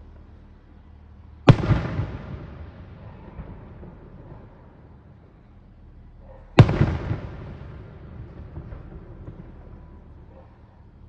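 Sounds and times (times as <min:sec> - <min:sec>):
firework boom with rumbling echo: 0:01.5 - 0:04.6, 0:06.6 - 0:10.1.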